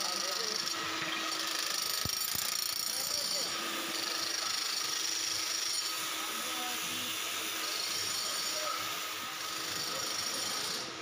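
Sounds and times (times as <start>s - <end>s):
mechanical hum and hiss: 5.4s - 11.0s.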